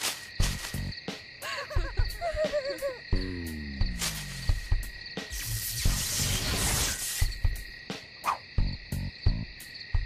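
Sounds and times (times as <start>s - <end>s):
background music: 0.4s - 10.0s
hissing electric crackle: 5.2s - 7.4s.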